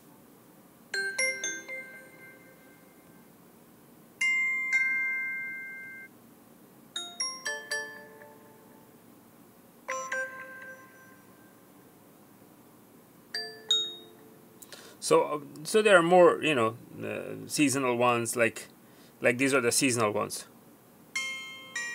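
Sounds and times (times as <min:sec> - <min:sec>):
electronic doorbell chimes: 0:01.0 - 0:02.9, 0:04.2 - 0:06.1, 0:07.0 - 0:08.9, 0:09.9 - 0:11.6, 0:13.4 - 0:14.3, 0:21.2 - 0:21.9.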